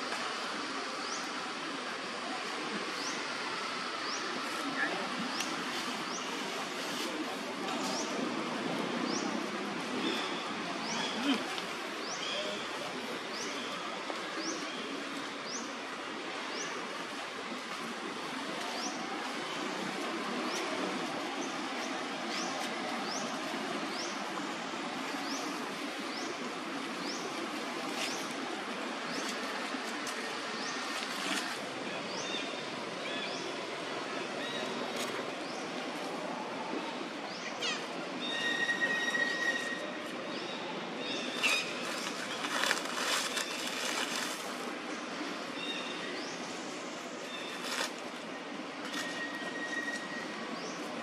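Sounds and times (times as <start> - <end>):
outdoor background hiss: 0.0 - 51.0
dry leaves rustling: 41.0 - 45.0, 45.6 - 50.1.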